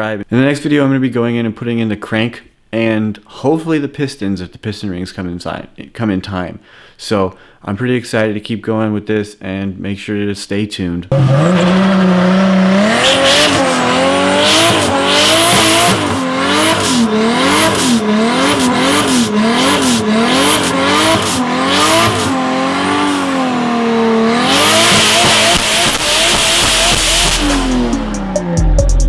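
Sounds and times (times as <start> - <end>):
tire squealing: 11.1 - 28.7
car engine revving: 11.1 - 29.0.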